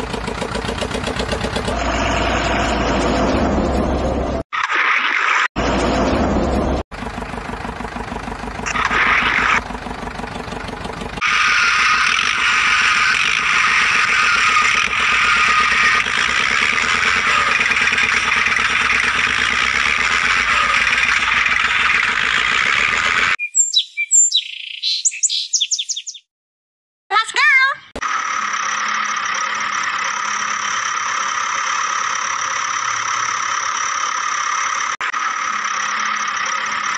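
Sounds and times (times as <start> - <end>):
toy tractor engine running: 0.0 - 1.8, 7.0 - 23.4, 28.0 - 36.9.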